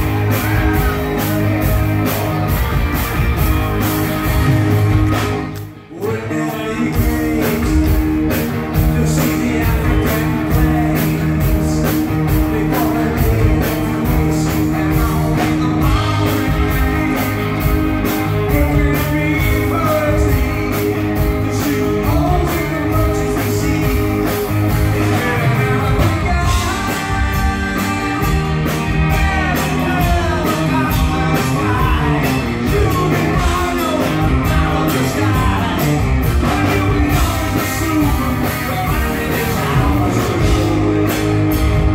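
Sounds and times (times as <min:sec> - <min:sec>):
man singing lead: 0:00.0 - 0:02.6, 0:05.6 - 0:41.9
live rock band playing: 0:00.0 - 0:41.9.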